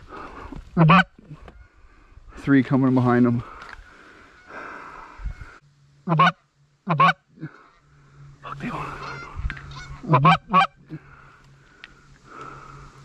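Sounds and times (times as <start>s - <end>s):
geese honking: 0.7s - 1.8s, 3.9s - 12.8s.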